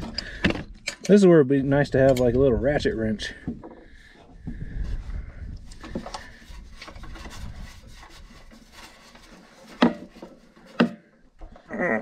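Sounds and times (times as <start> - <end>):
wrench rubbing on sheet metal: 5.8 - 10.9.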